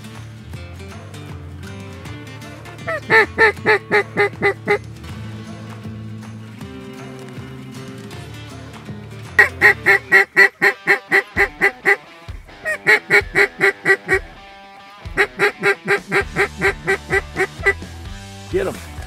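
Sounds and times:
duck call quacks: 2.7s - 4.8s, 9.4s - 17.9s.

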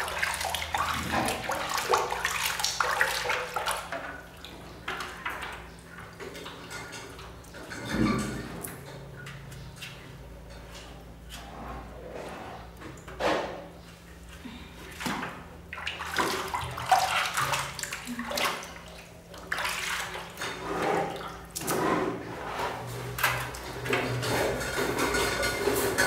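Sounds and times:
water splashing in plastic basin: 0.0s - 9.2s, 14.8s - 22.4s.

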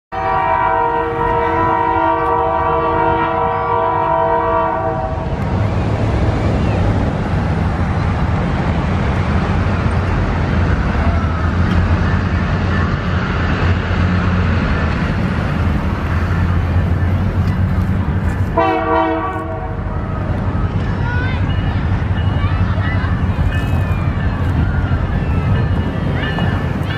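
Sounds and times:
locomotive air horn: 0.1s - 5.4s, 18.5s - 19.9s
train wheel noise: 0.1s - 26.9s
diesel engine rumble: 1.1s - 26.9s.

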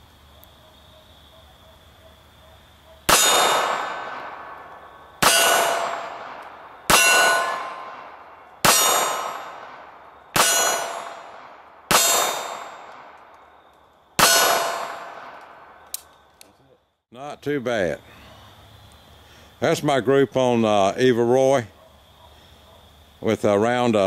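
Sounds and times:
pistol shots: 3.1s - 13.4s, 14.2s - 16.2s
steel target clanging: 5.2s - 8.0s, 8.6s - 9.7s, 10.4s - 12.9s, 14.2s - 15.2s.

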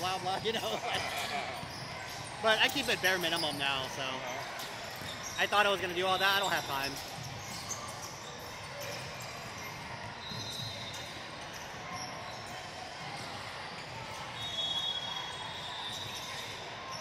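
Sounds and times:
gym hall background noise: 0.0s - 17.0s
basketball bouncing on court: 6.3s - 12.1s.

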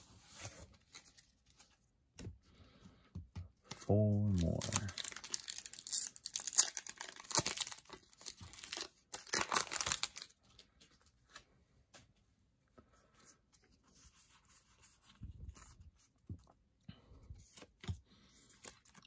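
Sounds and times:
cards rustling: 3.6s - 12.0s
foil wrapper tearing and crinkling: 4.3s - 10.4s.

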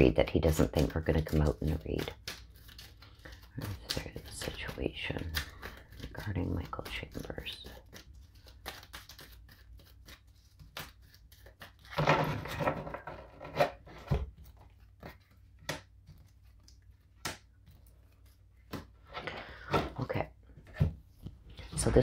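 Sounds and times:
cards shuffling: 0.0s - 19.8s
cards snapping and tapping: 0.8s - 12.7s, 14.9s - 17.8s.

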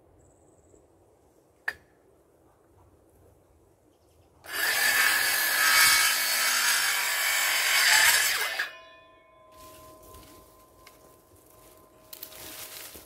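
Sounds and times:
circular saw cutting wood: 4.5s - 9.0s.

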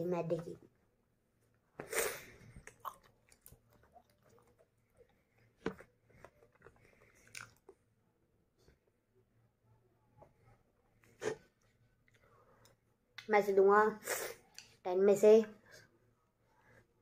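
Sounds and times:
person chewing food: 1.7s - 8.0s.

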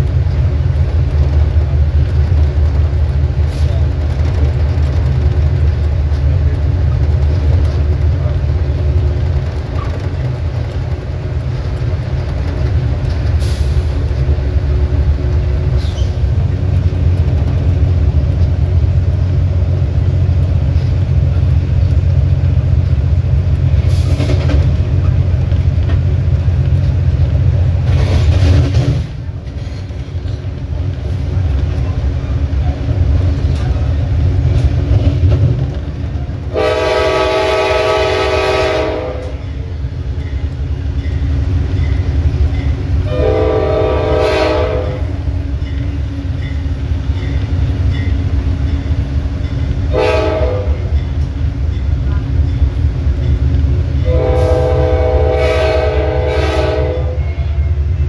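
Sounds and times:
locomotive horn blasts: 36.5s - 39.5s, 43.0s - 45.2s, 49.9s - 50.9s, 54.0s - 57.7s.

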